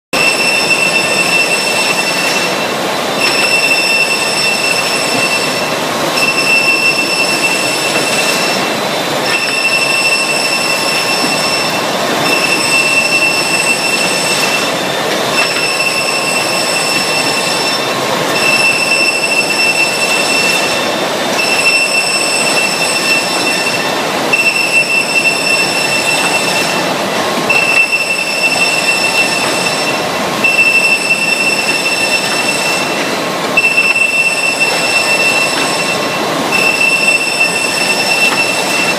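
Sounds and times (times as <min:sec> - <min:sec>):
high machine whine: 0:00.1 - 0:38.9.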